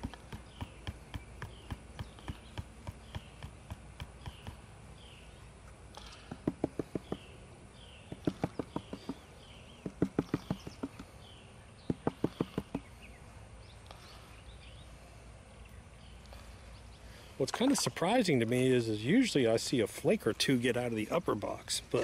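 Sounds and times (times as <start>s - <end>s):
hand tapping plastic pan: 6.3s - 7.2s, 8.1s - 9.2s, 9.8s - 11.1s, 11.9s - 12.9s.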